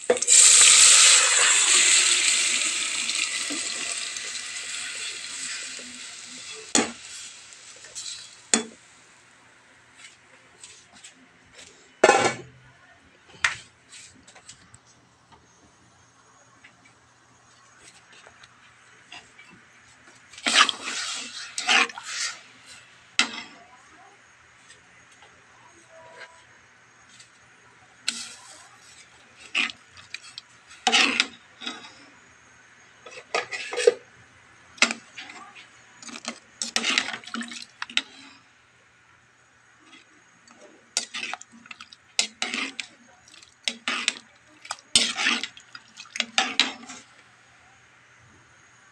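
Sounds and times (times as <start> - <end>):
ladle scraping a metal pot: 0.1 - 8.7, 20.4 - 23.6, 29.4 - 32.0, 36.0 - 38.2, 41.0 - 47.0.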